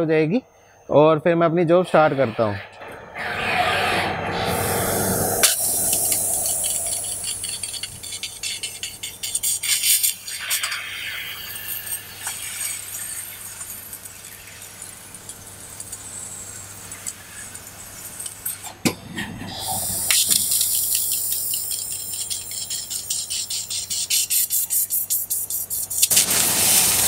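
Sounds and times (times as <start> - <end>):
low machine hum: 0.3 - 9.4
crackling hiss of laser cutting: 4.5 - 18.6, 19.5 - 27.0.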